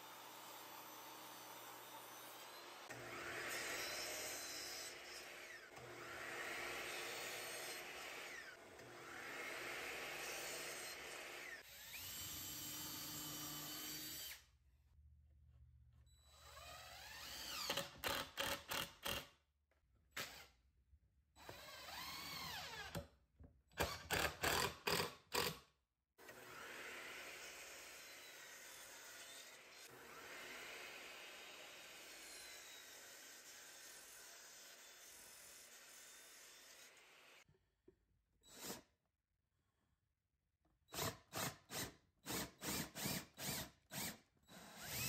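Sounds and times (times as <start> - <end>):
cordless drill whining: 10.8 - 14.5, 16.2 - 19.2, 21.4 - 23.0, 40.9 - 45.0.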